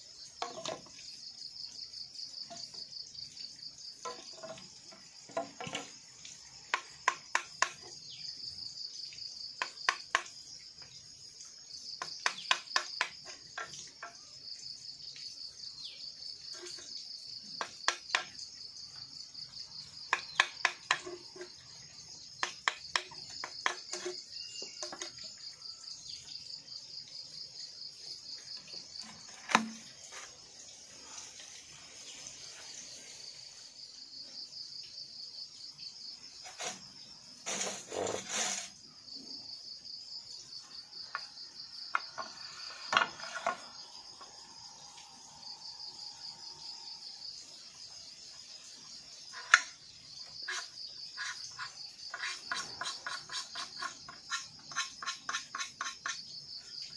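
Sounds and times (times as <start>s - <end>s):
insects trilling: 0.0s - 56.9s
bamboo poles knocking: 0.4s - 1.0s, 4.0s - 6.0s, 6.7s - 7.9s, 9.6s - 10.4s, 12.0s - 14.2s, 17.6s - 18.4s, 20.1s - 21.6s, 22.4s - 25.2s, 29.0s - 29.9s, 49.4s - 49.8s.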